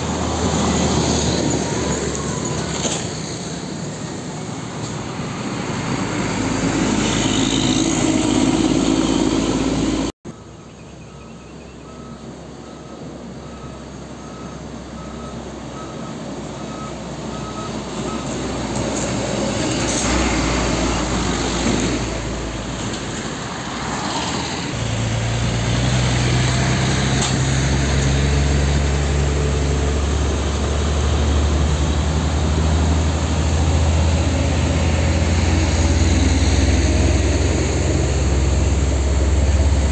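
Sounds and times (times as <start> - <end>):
dump truck diesel engines: 0.0 - 39.9.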